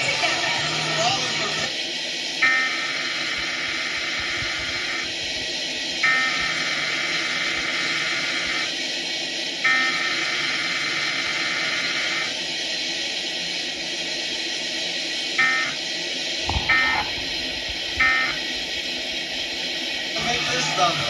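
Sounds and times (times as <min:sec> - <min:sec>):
quiet tv music: 0:00.0 - 0:01.9
warbling alert data tones: 0:06.0 - 0:08.7, 0:15.4 - 0:15.8, 0:16.5 - 0:19.5.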